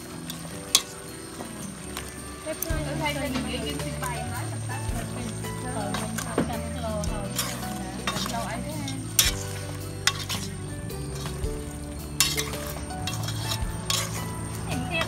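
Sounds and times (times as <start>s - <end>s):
broth sloshing: 0.0s - 15.0s
ladle clinking against pot: 5.9s - 11.4s, 12.2s - 14.3s.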